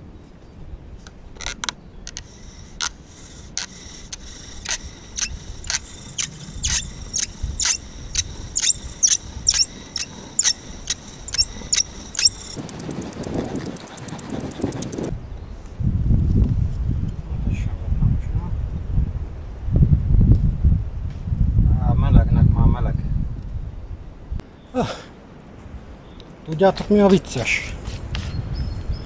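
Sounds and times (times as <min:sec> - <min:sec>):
bow drill spindle squeaking: 0:02.2 - 0:15.1
quick rattling: 0:04.2 - 0:15.1.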